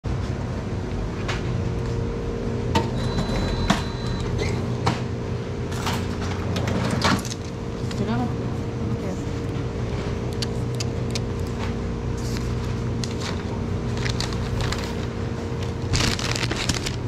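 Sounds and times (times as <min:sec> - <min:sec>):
steady low hum: 0:00.1 - 0:17.0.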